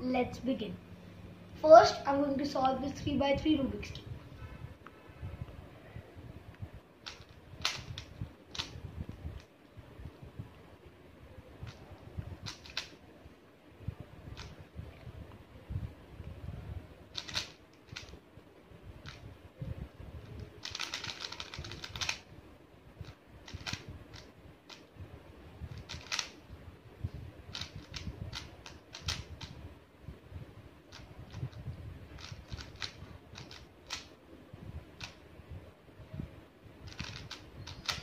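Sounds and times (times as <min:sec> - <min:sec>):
puzzle cube clicking as turned: 0:07.0 - 0:08.8, 0:12.4 - 0:13.0, 0:14.3 - 0:14.6, 0:17.1 - 0:18.2, 0:19.0 - 0:19.2, 0:20.3 - 0:22.3, 0:23.0 - 0:24.9, 0:25.7 - 0:26.4, 0:27.5 - 0:29.6, 0:30.9 - 0:34.1, 0:35.0 - 0:35.2, 0:36.8 - 0:38.0.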